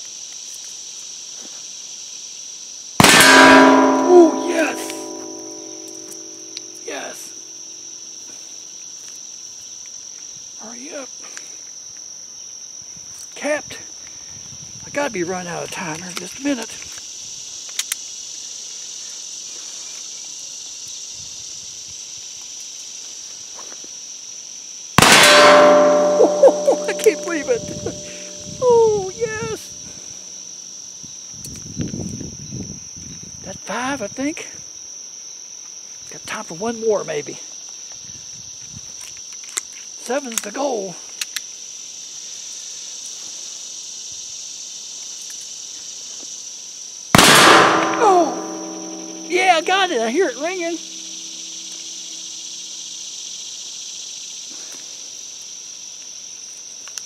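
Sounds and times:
insects buzzing: 0:00.0 - 0:57.0
pistol shot: 0:03.0 - 0:06.2, 0:25.0 - 0:28.4, 0:47.2 - 0:49.3
metal target ringing: 0:03.0 - 0:06.6, 0:25.0 - 0:28.7, 0:47.2 - 0:50.0.

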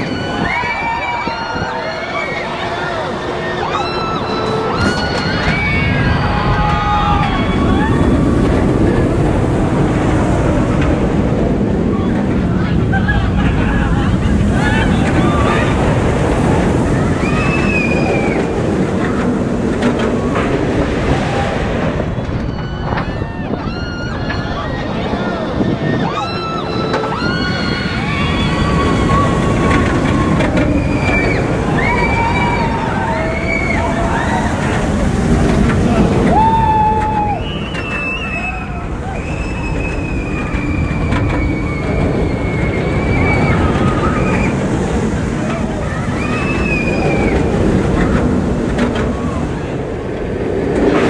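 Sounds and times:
high squeal: 0:00.0 - 0:08.2, 0:22.3 - 0:34.8, 0:36.4 - 0:44.7, 0:45.7 - 0:47.5
roller coaster wheels rumbling on track: 0:00.0 - 0:51.0.

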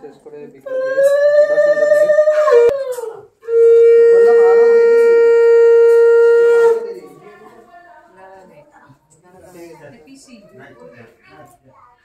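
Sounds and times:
conch shell blasts: 0:03.0 - 0:07.0.

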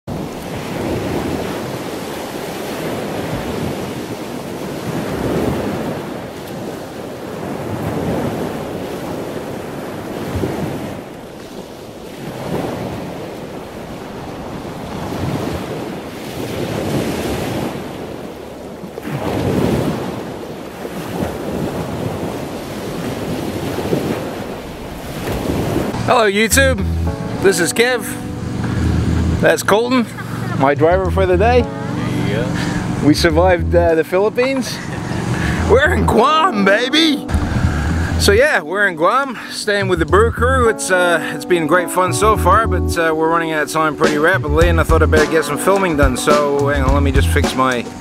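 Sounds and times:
small waves lapping on beach: 0:00.1 - 0:30.9, 0:31.6 - 0:33.2, 0:33.9 - 0:39.8.

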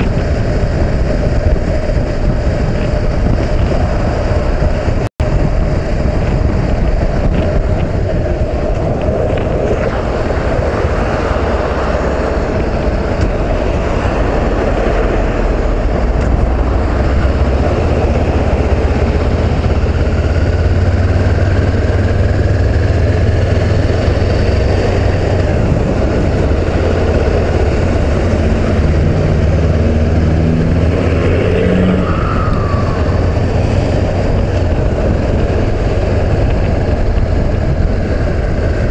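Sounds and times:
motorcycle engine drone: 0:00.0 - 0:38.9
tyres on road: 0:00.0 - 0:38.9
wind rushing over microphone: 0:00.0 - 0:38.9.

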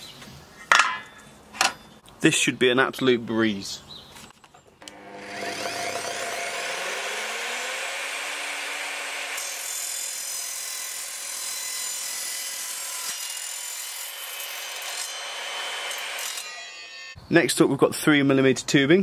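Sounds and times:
mitre saw motor: 0:04.8 - 0:16.8
saw blade grinding through steel: 0:04.8 - 0:17.2.

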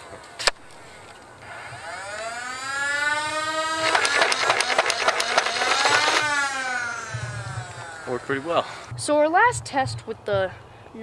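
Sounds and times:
flywheel motors whining: 0:01.4 - 0:08.9
toy blaster firing darts: 0:01.8 - 0:07.8.

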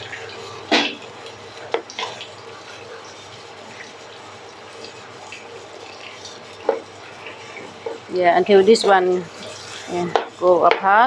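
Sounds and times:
spatula scraping wet coconut: 0:05.3 - 0:11.0.

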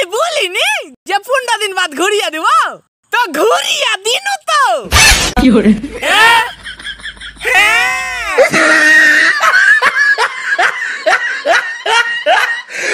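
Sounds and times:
men laughing: 0:05.5 - 0:12.8
men shouting: 0:07.4 - 0:09.2.

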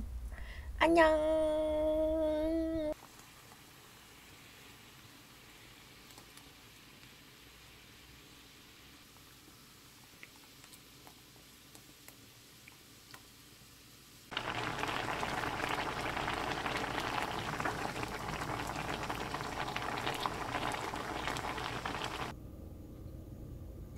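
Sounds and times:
thick sauce bubbling in a frying pan: 0:03.0 - 0:13.5, 0:14.1 - 0:22.3.

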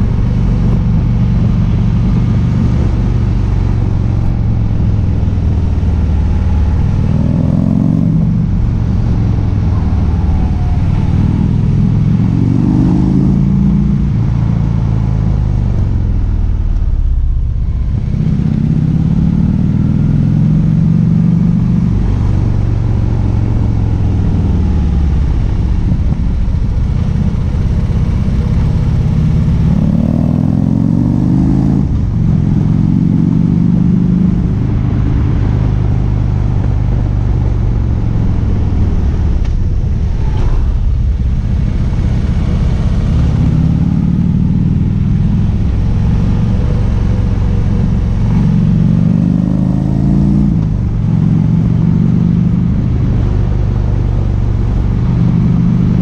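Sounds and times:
motorcycle engine revving: 0:00.0 - 0:56.0
wind and road noise: 0:00.0 - 0:56.0.

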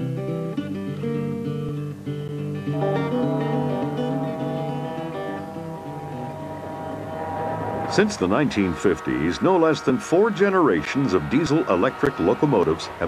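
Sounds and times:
acoustic guitar melody: 0:00.0 - 0:09.6.

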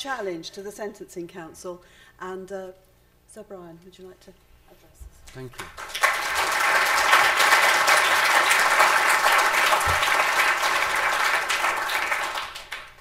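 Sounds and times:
audience applause: 0:05.7 - 0:13.0.

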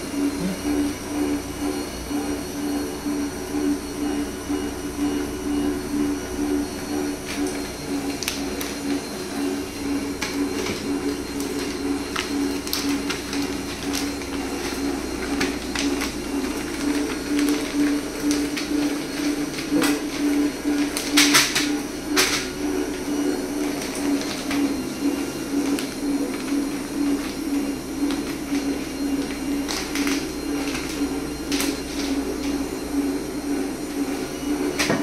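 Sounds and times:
pulsing motor hum: 0:00.0 - 0:35.0
plastic pouches crackling: 0:10.2 - 0:21.7, 0:28.0 - 0:32.2.

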